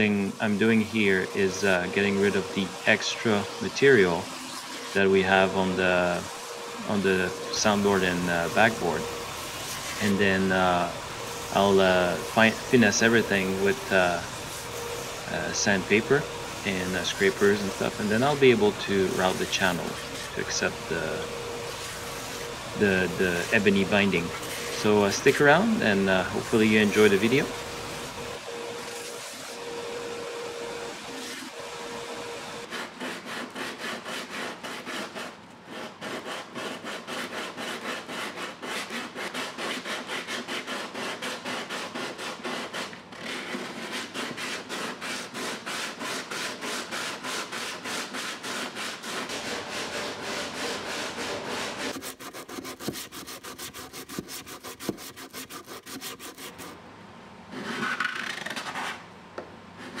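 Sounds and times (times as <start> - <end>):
belt sander running: 0.0 - 32.8, 45.4 - 56.8
hand sanding and scraping wood: 0.0 - 56.8, 57.5 - 59.0, 59.8 - 60.0.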